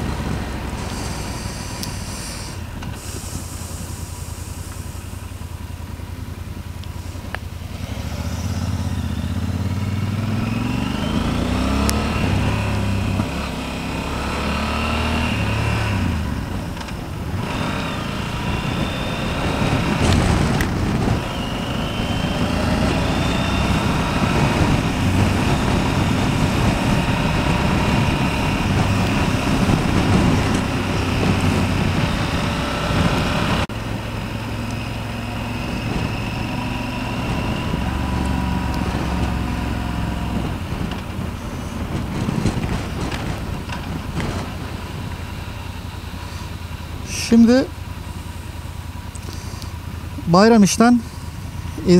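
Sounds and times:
motorcycle engine accelerating: 0.0 - 51.9
wind noise rushing: 14.2 - 33.7, 35.2 - 45.2.

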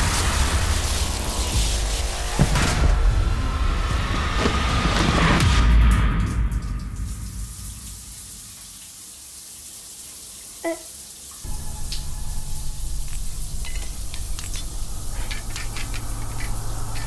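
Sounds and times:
shower water spraying on tiles: 0.0 - 2.7, 4.1 - 17.0
low steady drone: 11.4 - 17.0.

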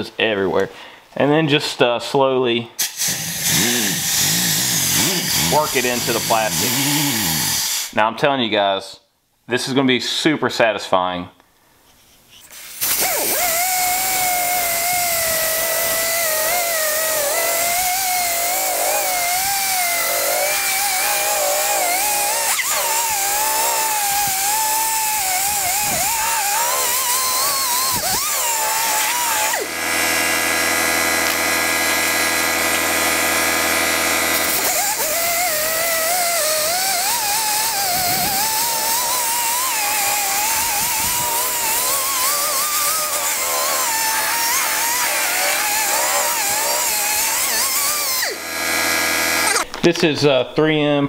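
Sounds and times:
steady buzz: 2.9 - 8.0, 12.7 - 50.1
electric polisher motor whine: 13.0 - 49.7.

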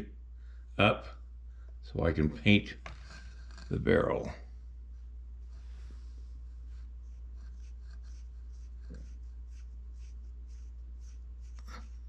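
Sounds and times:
steady low hum: 0.0 - 12.0
paintbrush scratchy strokes: 3.0 - 12.0.

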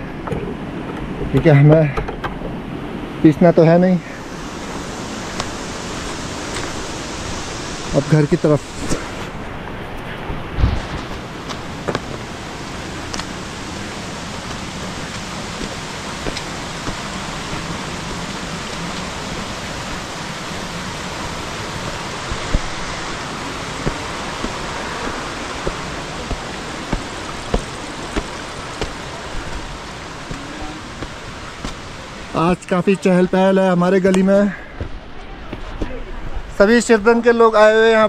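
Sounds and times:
flowing water rushing: 0.0 - 38.0
footsteps on stone steps: 4.7 - 6.8, 10.7 - 32.3.

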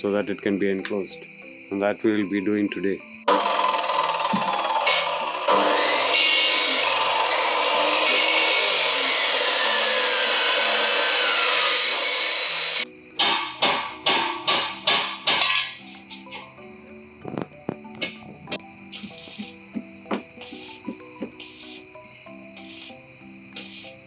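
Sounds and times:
background music: 0.0 - 3.4, 4.1 - 24.0
angle grinder cutting metal pipe: 3.3 - 16.4
sharp knocks: 13.2 - 15.8.

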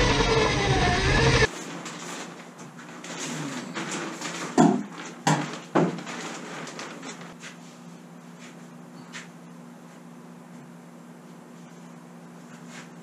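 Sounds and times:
steady low hum: 0.0 - 1.5.

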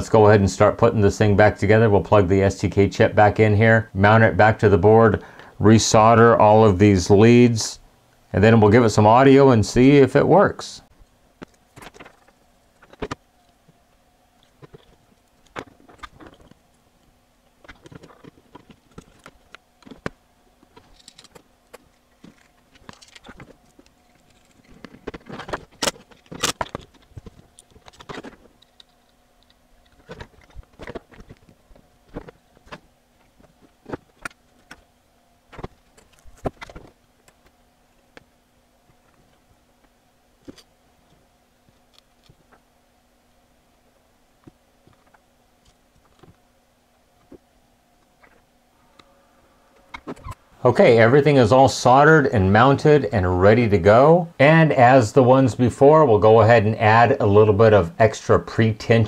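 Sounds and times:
screwdriver clicking and rattling: 20.8 - 21.4, 22.2 - 30.6.

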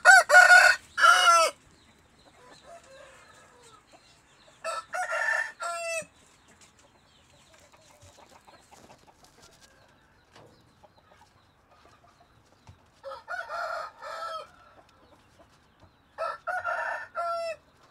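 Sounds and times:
rooster crowing: 0.0 - 1.6, 4.6 - 6.1, 13.0 - 14.7, 16.2 - 17.6
faint background noise: 0.0 - 17.9.

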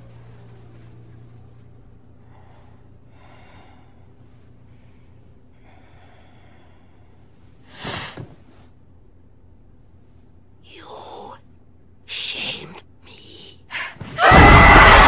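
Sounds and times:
low steady hum: 0.0 - 15.0
slow hissing breaths: 2.1 - 8.8.

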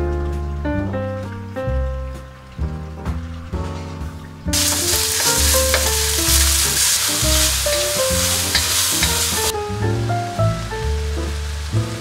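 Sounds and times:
background music with melody: 0.0 - 12.0
meat sizzling in a wok: 4.5 - 12.0.

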